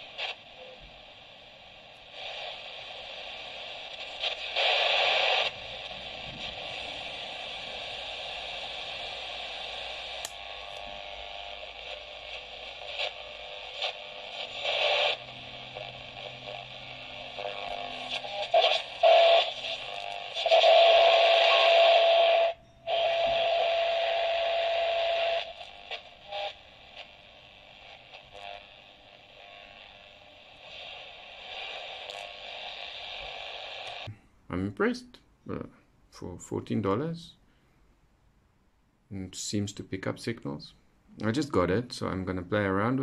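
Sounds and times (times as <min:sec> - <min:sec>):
radio static while tuning: 0:00.0 - 0:34.1
steady radio whistle: 0:17.2 - 0:25.5.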